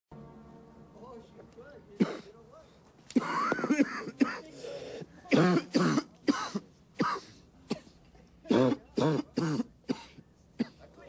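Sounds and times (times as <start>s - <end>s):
man coughing: 2.0s - 2.4s, 3.1s - 4.6s, 5.3s - 10.9s.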